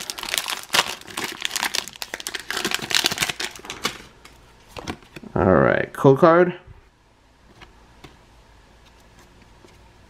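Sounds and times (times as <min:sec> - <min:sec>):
foil wrapper crinkling: 0:00.0 - 0:04.0.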